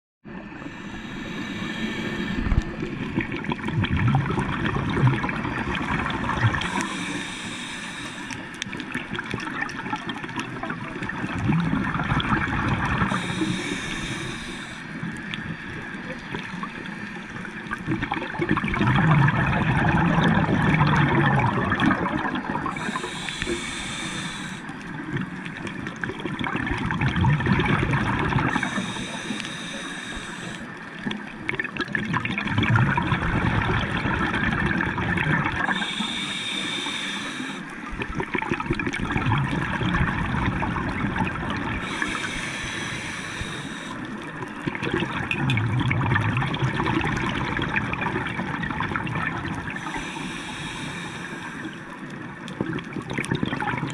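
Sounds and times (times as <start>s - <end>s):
underwater exhaled bubbles: 0.3s - 53.9s
regulator inhale hiss: 0.5s - 3.0s, 6.0s - 9.0s, 12.8s - 16.0s, 22.6s - 25.0s, 28.4s - 31.2s, 35.5s - 37.9s, 41.7s - 44.6s, 49.7s - 52.2s.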